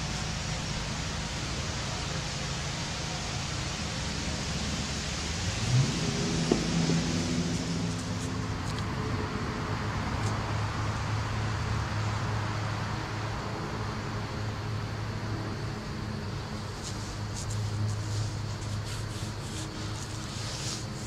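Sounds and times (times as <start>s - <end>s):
even hiss: 0.0s - 9.0s, 16.4s - 21.0s.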